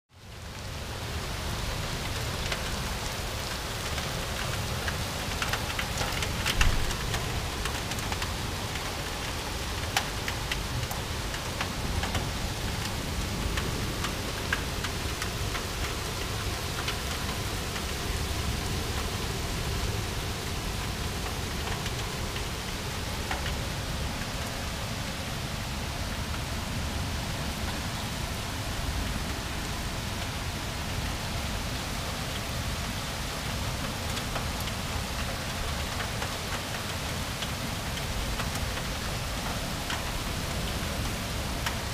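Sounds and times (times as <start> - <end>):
heavy rain pouring: 0.2 - 41.9.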